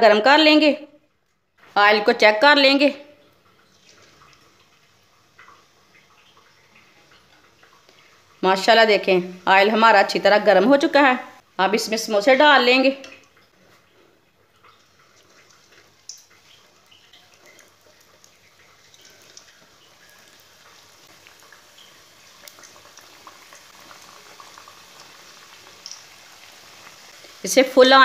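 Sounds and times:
oil bubbling: 0:03.0 - 0:11.6, 0:12.7 - 0:27.8
oil sizzling and crackling: 0:03.2 - 0:11.6, 0:12.8 - 0:28.0.

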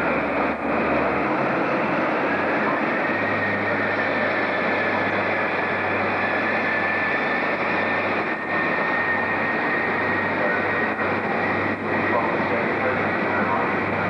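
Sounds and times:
train moving with low hum: 0:00.0 - 0:14.0.

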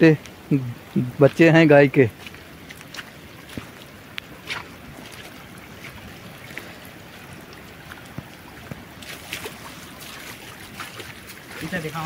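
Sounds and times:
fast-running rainwater: 0:00.0 - 0:12.0
rain: 0:00.0 - 0:12.0
faint scattered taps: 0:07.8 - 0:08.9.

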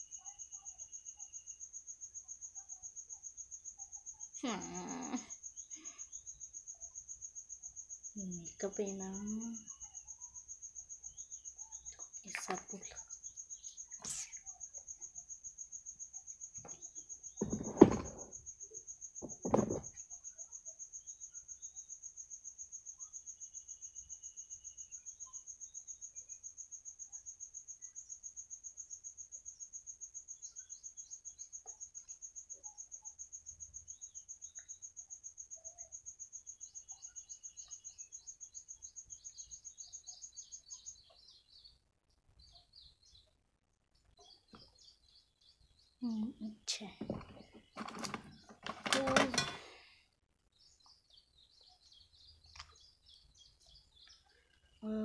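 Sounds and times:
insect trilling: 0:00.0 - 0:41.7
faint bird chirps: 0:00.0 - 0:55.0
loud thumps: 0:17.4 - 0:18.4, 0:19.2 - 0:20.0.

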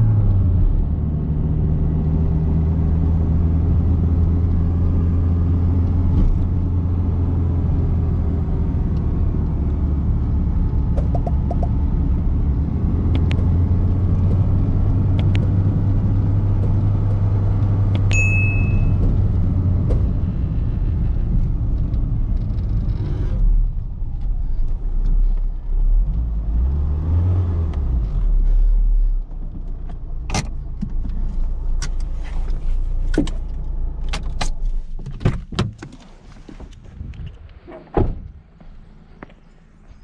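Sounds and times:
car engine running: 0:00.0 - 0:26.5
sharp clicks and knocks: 0:10.9 - 0:11.8
short beep: 0:18.0 - 0:19.0.

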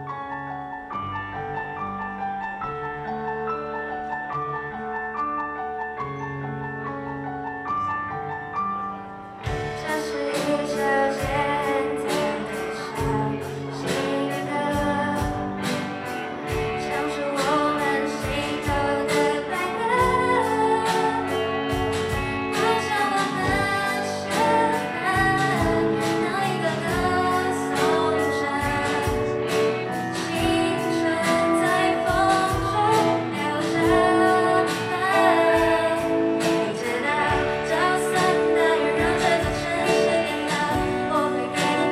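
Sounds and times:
rock band playing: 0:09.3 - 0:41.9
woman singing: 0:09.6 - 0:41.9.

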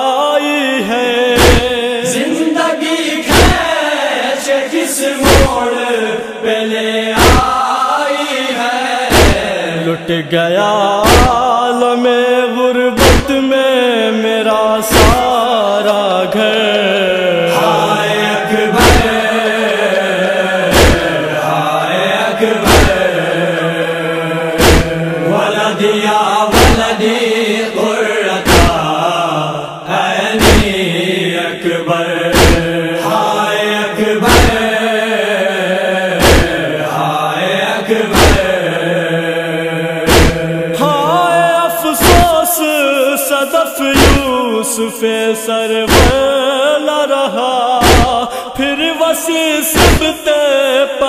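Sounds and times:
voices chanting a lament: 0:00.0 - 0:51.0
heavy rhythmic thump: 0:01.4 - 0:01.8, 0:03.3 - 0:03.7, 0:05.2 - 0:05.7, 0:07.2 - 0:07.6, 0:09.1 - 0:09.6, 0:11.0 - 0:11.5, 0:13.0 - 0:13.5, 0:14.9 - 0:15.4, 0:18.7 - 0:19.6, 0:20.6 - 0:21.3, 0:22.6 - 0:23.3, 0:24.5 - 0:25.2, 0:26.5 - 0:27.0, 0:28.4 - 0:29.0, 0:30.4 - 0:30.9, 0:32.3 - 0:32.8, 0:34.2 - 0:34.8, 0:36.1 - 0:36.7, 0:38.1 - 0:38.7, 0:40.0 - 0:40.6, 0:42.0 - 0:42.4, 0:44.0 - 0:44.4, 0:45.9 - 0:46.4, 0:47.8 - 0:48.3, 0:49.8 - 0:50.2.

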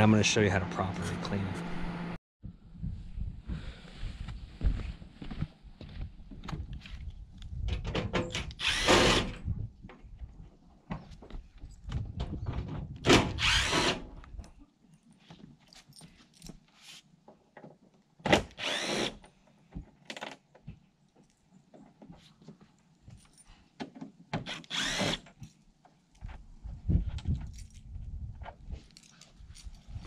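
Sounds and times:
cordless drill whirring: 0:08.6 - 0:09.3, 0:13.4 - 0:14.0, 0:18.6 - 0:19.2, 0:24.5 - 0:25.2.

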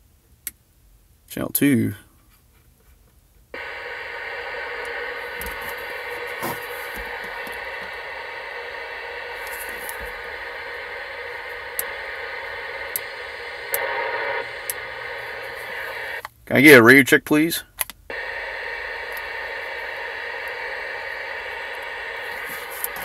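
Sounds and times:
radio channel switch clicks: 0:03.6 - 0:16.2, 0:18.1 - 0:23.0
radio static hiss: 0:03.6 - 0:17.0, 0:18.1 - 0:23.0.

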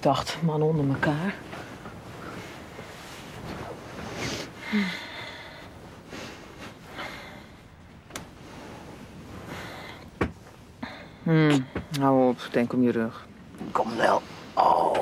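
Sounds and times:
bedclothes rustling: 0:00.0 - 0:14.9
man breathing: 0:04.1 - 0:07.8.

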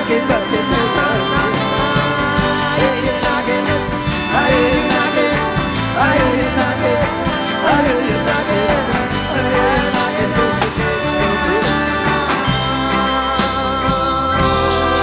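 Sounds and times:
gliding melodic lead line: 0:00.0 - 0:15.0
rock band playing: 0:00.0 - 0:15.0.

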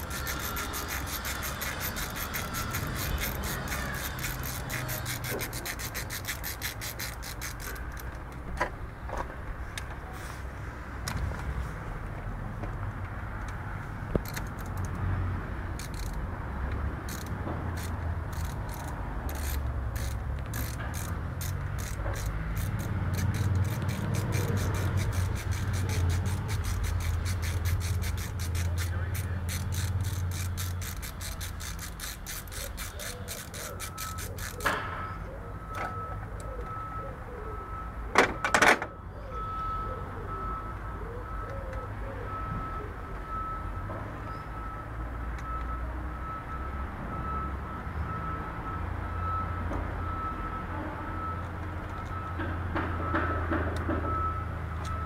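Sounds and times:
steady high beeping tone: 0:00.0 - 0:07.3, 0:17.1 - 0:53.4
ratchet wrench clicking: 0:00.0 - 0:08.4, 0:14.2 - 0:15.1, 0:15.7 - 0:34.9.

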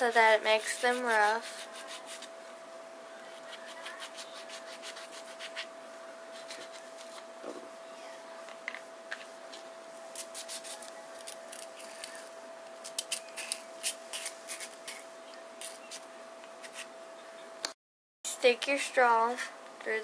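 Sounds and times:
emery board scratching plastic: 0:00.0 - 0:02.3, 0:03.3 - 0:05.7, 0:06.3 - 0:07.3, 0:10.2 - 0:16.9.

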